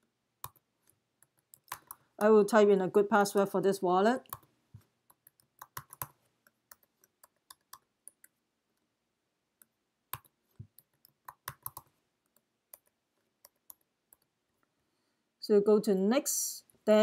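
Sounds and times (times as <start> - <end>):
faint typing on computer keyboard: 0.0 - 2.3, 4.2 - 8.9, 9.6 - 14.8.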